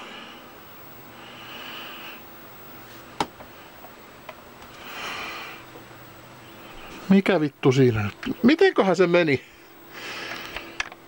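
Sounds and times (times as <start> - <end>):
steady low hum: 0.0 - 11.0
man breathing out heavily: 4.8 - 5.7, 9.5 - 10.8.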